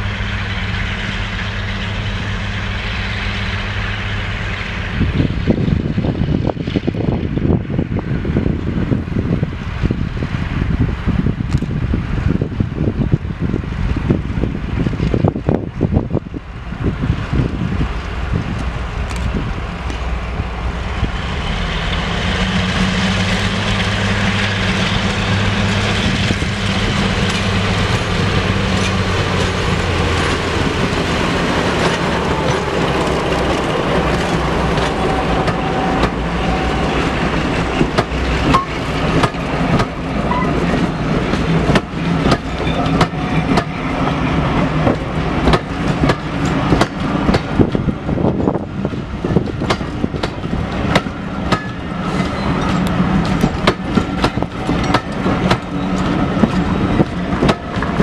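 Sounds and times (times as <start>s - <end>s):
locomotive engine drone: 0.0s - 58.0s
train wheels clattering over rail joints: 21.8s - 58.0s.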